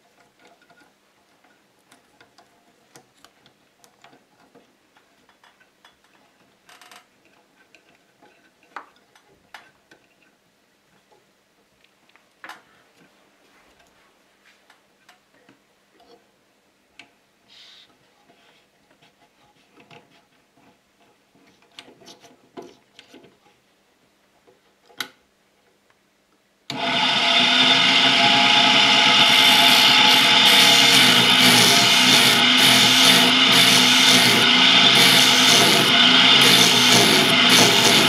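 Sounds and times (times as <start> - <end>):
machine whirring and rasping: 26.7 - 38.0.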